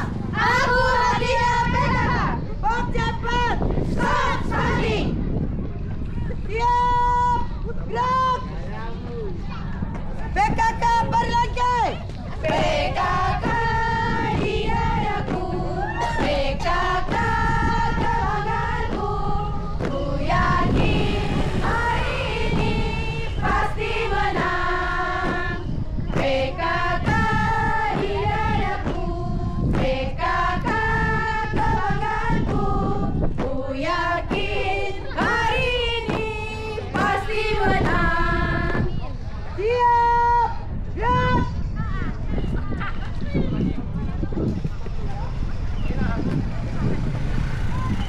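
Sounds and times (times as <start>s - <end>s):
women singing in unison: 0.0s - 2.4s, 3.9s - 5.1s, 12.4s - 38.9s
steady low rumble: 0.0s - 39.6s.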